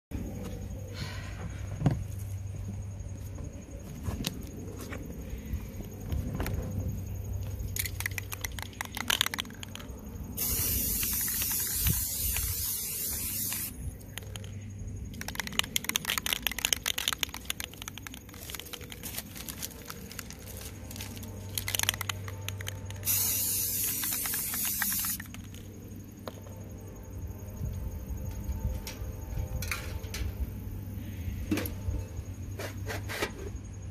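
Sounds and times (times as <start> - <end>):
spray can rattling when shaken: 7.7 - 14.5, 15.1 - 25.6
spray can hissing: 10.4 - 13.8, 23.0 - 25.4.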